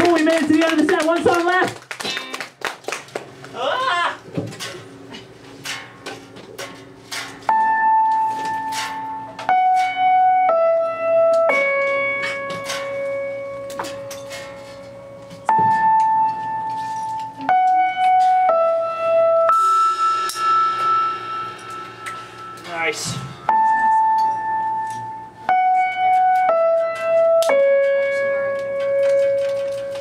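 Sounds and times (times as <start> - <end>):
keyboard playing held notes: 7.5 - 30.0.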